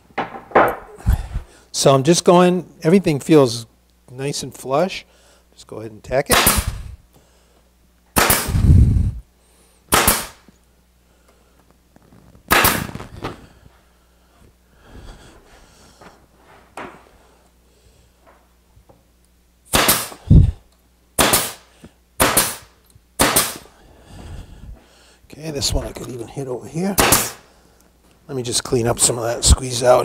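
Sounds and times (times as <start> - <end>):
brad nailer firing: 6.3 - 6.9, 8.1 - 8.7, 9.9 - 10.5, 12.5 - 13.0, 19.7 - 20.4, 21.2 - 23.7, 26.9 - 27.5.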